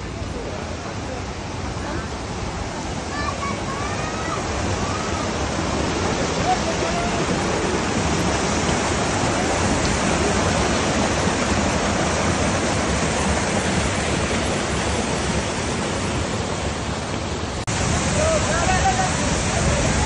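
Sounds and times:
water rushing over rocks: 0:00.0 - 0:20.0.

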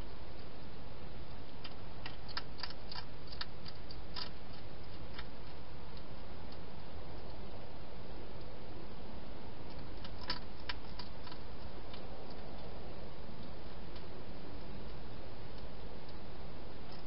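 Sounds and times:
steady hiss: 0:00.0 - 0:17.0
hedgehog eating clicks: 0:01.3 - 0:07.5, 0:09.6 - 0:16.3.

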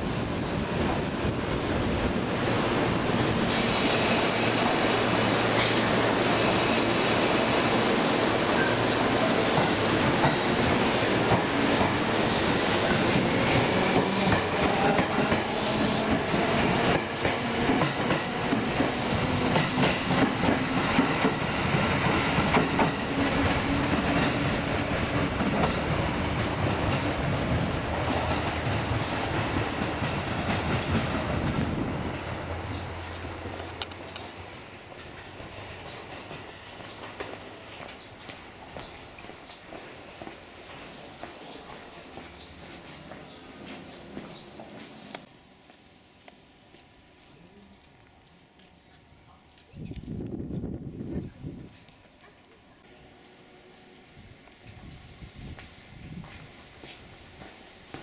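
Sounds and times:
train wheels clattering on rails: 0:03.0 - 0:31.8
high hissing: 0:03.4 - 0:10.1.

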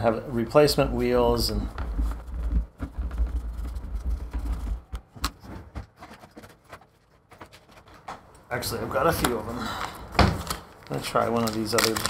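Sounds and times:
plastic box handling rumble: 0:01.0 - 0:08.3, 0:09.0 - 0:12.0.

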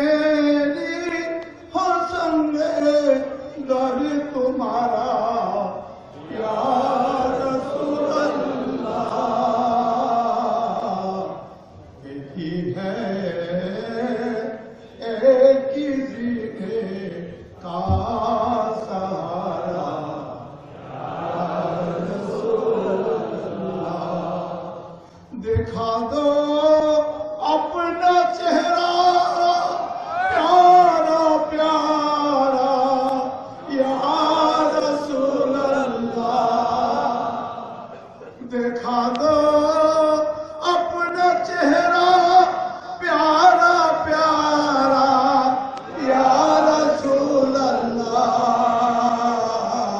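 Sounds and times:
unaccompanied devotional chanting: 0:00.0 - 0:49.9
breaths: 0:25.0 - 0:25.4.

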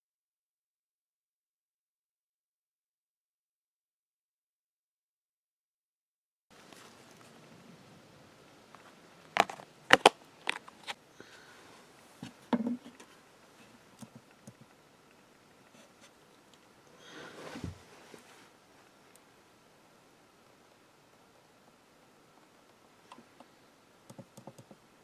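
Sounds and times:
short rustle: 0:17.0 - 0:18.6.

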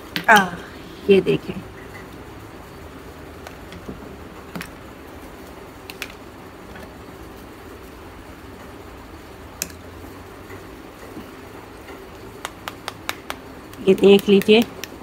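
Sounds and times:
clay slabs knocking together: 0:12.4 - 0:15.0.

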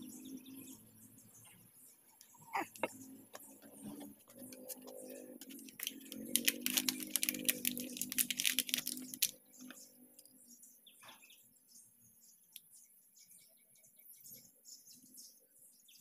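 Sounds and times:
paper wrapper tearing and crinkling: 0:05.5 - 0:09.4.

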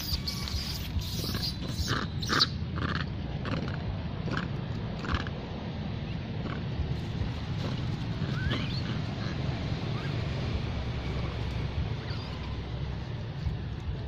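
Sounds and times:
monkey grunting: 0:00.0 - 0:05.4, 0:06.4 - 0:06.8, 0:07.5 - 0:10.2
low background rumble: 0:00.0 - 0:14.0.

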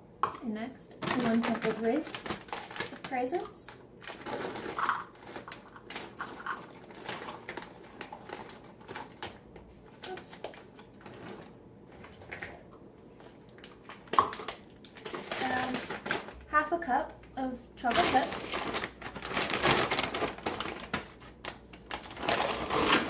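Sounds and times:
dried berries pattering into plastic: 0:00.2 - 0:12.6, 0:13.2 - 0:23.0
plastic bag crinkling: 0:00.9 - 0:12.6, 0:13.2 - 0:16.5, 0:17.2 - 0:23.0.

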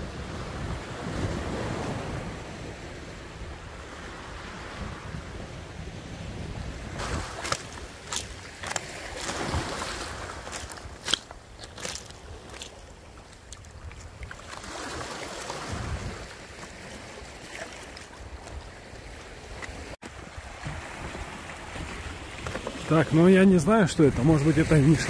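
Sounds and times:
wind buffeting microphone: 0:00.0 - 0:12.6, 0:15.5 - 0:16.4
sea waves washing on shore: 0:00.0 - 0:25.0.

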